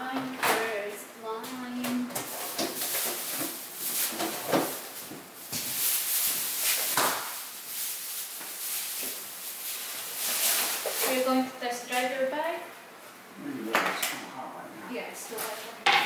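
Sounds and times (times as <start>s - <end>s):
items knocking and clattering: 1.8s - 7.4s
rustling: 2.2s - 11.4s.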